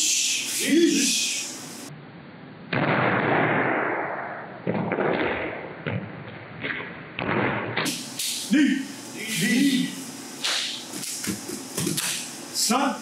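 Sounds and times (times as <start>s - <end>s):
bare feet stomping on mat: 11.2s - 12.2s.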